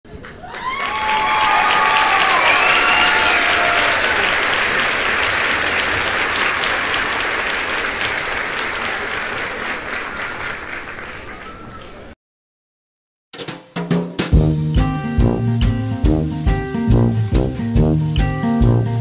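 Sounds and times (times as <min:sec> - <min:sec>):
crowd applause: 0:00.1 - 0:12.2.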